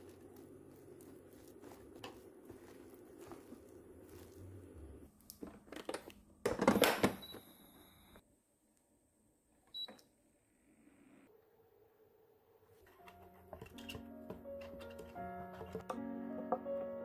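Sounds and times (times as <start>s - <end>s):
rice paddle stirring sticky rice: 0.0s - 5.1s.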